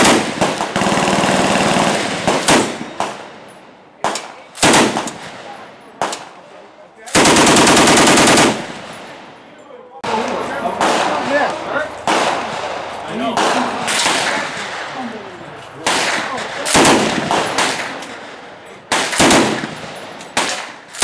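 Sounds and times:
automatic rifle bursts: 4.1 - 5.2, 7.1 - 8.7, 15.9 - 18.2, 18.9 - 19.8.

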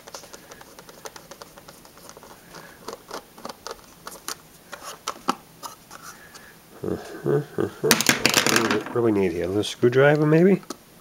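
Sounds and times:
screwdriver clicking and scratching: 0.0 - 4.9.

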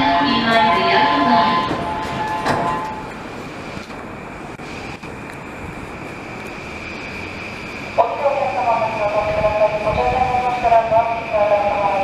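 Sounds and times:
train equipment hum: 0.0 - 12.0.

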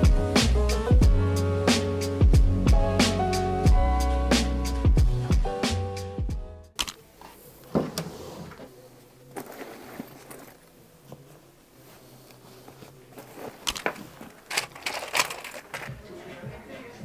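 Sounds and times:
objects knocking and clicking: 13.7 - 16.0.

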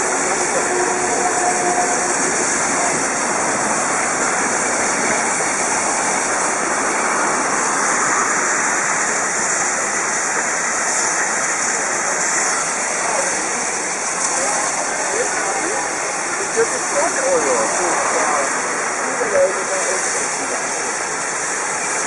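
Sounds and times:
steam hissing: 0.0 - 22.0.

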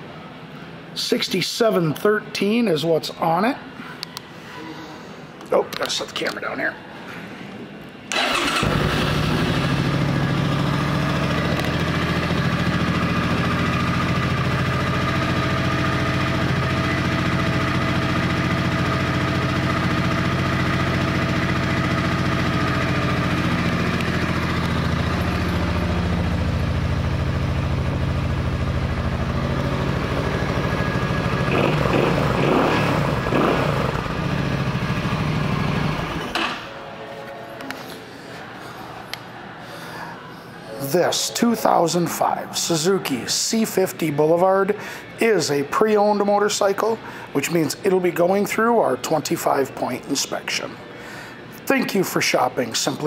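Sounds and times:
motorcycle engine idling: 8.2 - 36.3.

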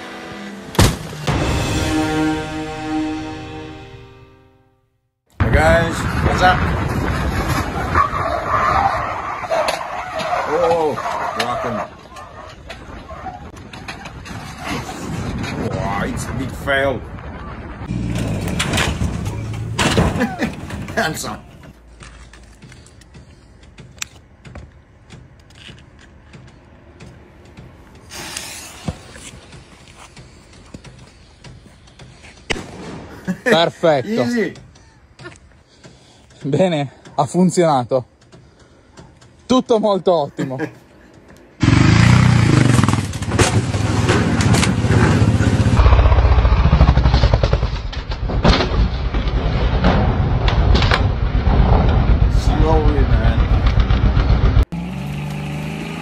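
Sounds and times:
hiss: 28.1 - 29.1
dirt bike engine revving: 41.6 - 47.6, 53.8 - 56.0.

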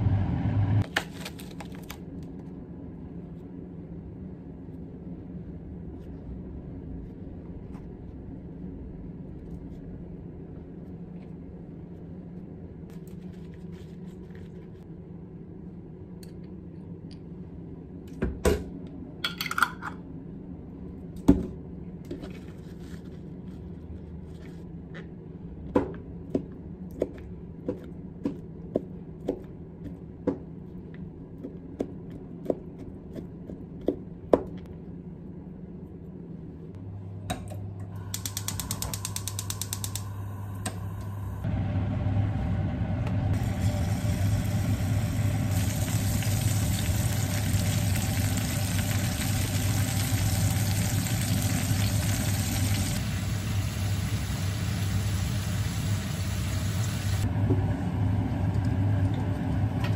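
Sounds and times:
gas stove igniter clicking: 38.1 - 41.1.

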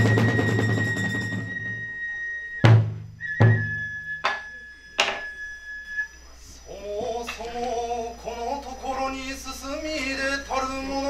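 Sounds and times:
held high flute note: 0.0 - 6.2
deep drum strikes: 2.7 - 3.8
chanted singing voice: 6.6 - 11.0.

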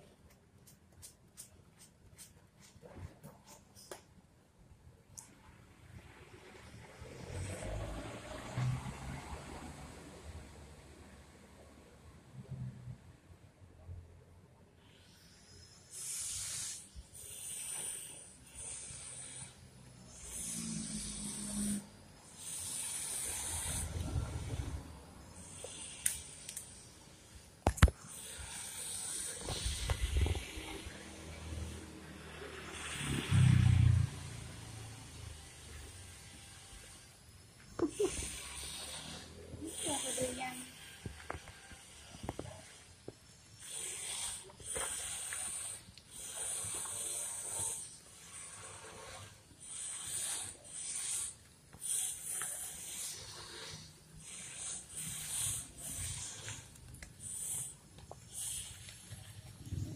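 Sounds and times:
wet hiss of dog lathering: 15.9 - 20.7, 28.1 - 33.0, 37.8 - 59.9.

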